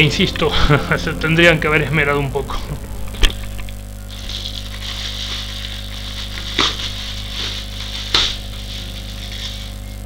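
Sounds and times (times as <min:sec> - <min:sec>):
plastic bag rustling and crinkling: 0:04.1 - 0:09.8.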